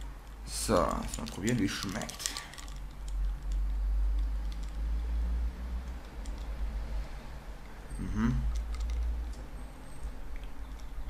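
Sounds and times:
small clicks and handling sounds: 0.0s - 5.1s, 5.8s - 6.6s, 8.5s - 11.0s
short rising voiced sound: 8.0s - 8.5s.

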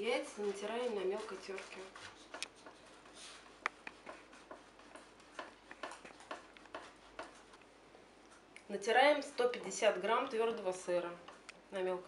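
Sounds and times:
egg grated on metal grater: 0.0s - 3.1s.

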